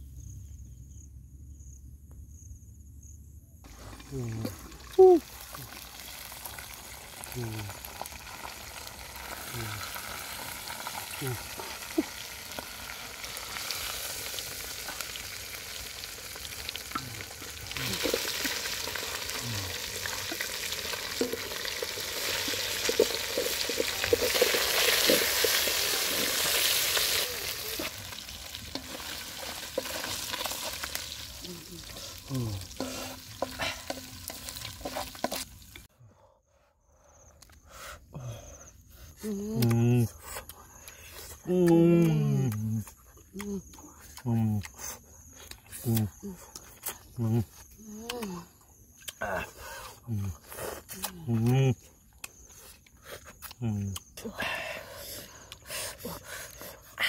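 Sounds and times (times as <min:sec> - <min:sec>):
fish sizzling in a pot: 0:03.7 - 0:35.9
wooden spoon scraping a pot: 0:32.7 - 0:35.5.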